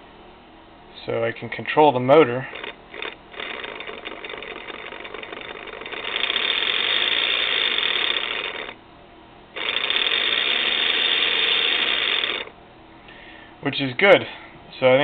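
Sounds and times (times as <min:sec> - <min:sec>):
electric motor spinning gear: 0:02.2 - 0:08.8, 0:09.6 - 0:12.6.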